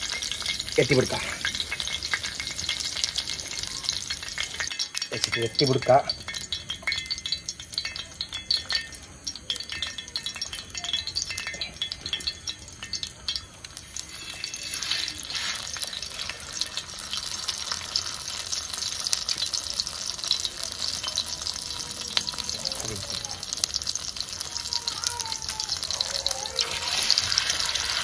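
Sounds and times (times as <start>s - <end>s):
prawns sizzling in a pan: 0.0s - 28.0s
utensil scraping a pan: 13.8s - 16.6s.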